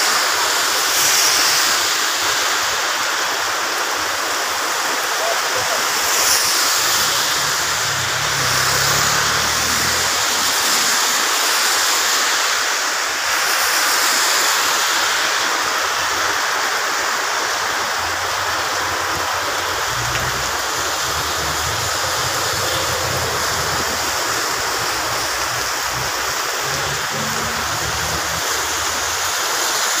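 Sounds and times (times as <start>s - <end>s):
heavy rain on wet road: 0.0s - 30.0s
tyres swishing through water: 0.1s - 30.0s
low rumble of vehicles: 5.8s - 11.8s, 17.6s - 29.6s.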